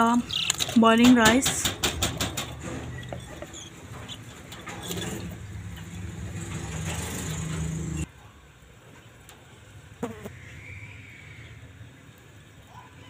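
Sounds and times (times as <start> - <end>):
motor engine running: 4.8 - 8.0.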